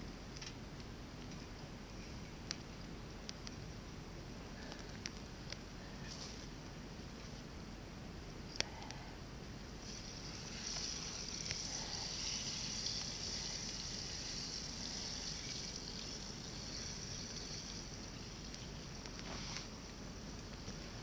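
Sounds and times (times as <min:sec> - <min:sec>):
frying pan sizzling: 0:09.9 - 0:19.7.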